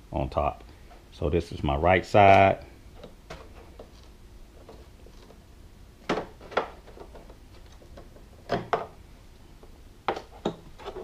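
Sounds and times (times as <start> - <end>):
faint handling noise: 2.2 - 5.5.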